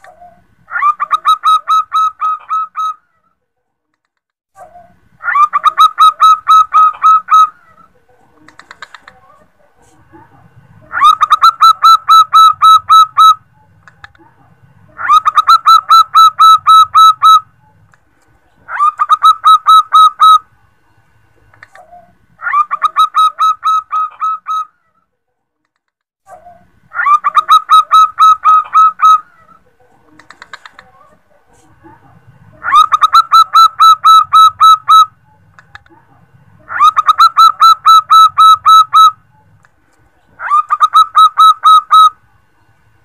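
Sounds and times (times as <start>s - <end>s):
dove cooing: 0.0s - 3.1s, 4.6s - 9.5s, 10.8s - 14.2s, 14.9s - 17.8s, 18.6s - 20.4s, 21.6s - 24.7s, 26.4s - 31.2s, 32.5s - 35.8s, 36.6s - 39.6s, 40.3s - 42.2s.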